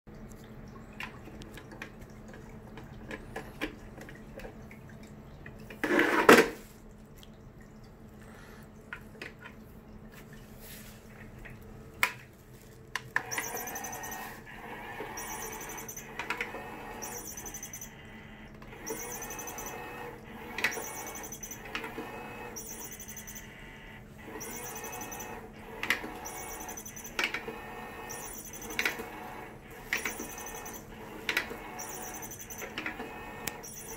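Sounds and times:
small toy motor whirring: 0:13.2 - 0:18.0, 0:18.7 - 0:33.9
clicks: 0:29.8 - 0:33.9.

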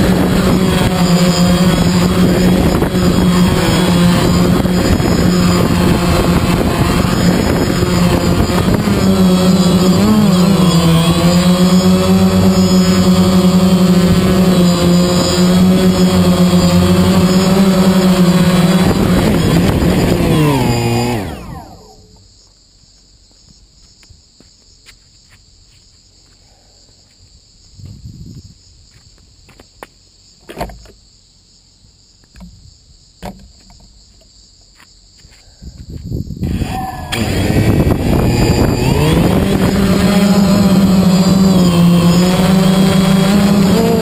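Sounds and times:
drone rotors buzzing: 0:00.0 - 0:22.6, 0:36.4 - 0:44.0.

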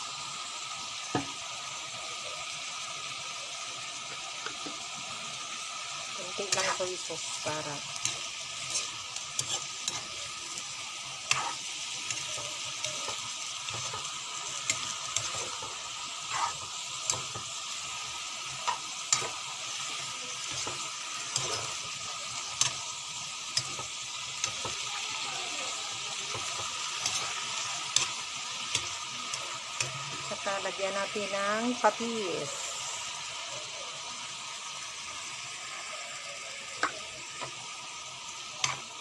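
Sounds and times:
vegetables sizzling in a pan: 0:00.0 - 0:39.0
spatula knocking and scraping pan: 0:11.3 - 0:11.6, 0:14.7 - 0:17.5.

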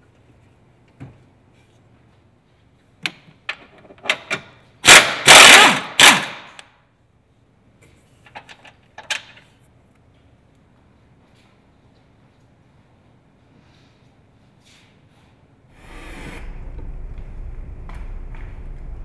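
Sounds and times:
loud noisy burst: 0:15.8 - 0:19.0.

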